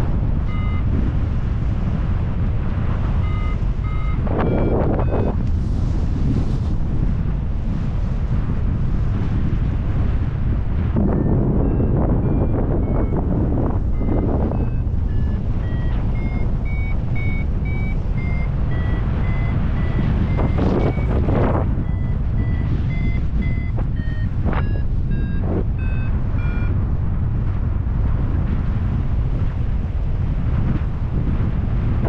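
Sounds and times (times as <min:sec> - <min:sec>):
wind noise on microphone: 0:00.0 - 0:32.0
variometer beeping in short tones: 0:00.4 - 0:01.1, 0:03.2 - 0:05.4, 0:11.0 - 0:26.8.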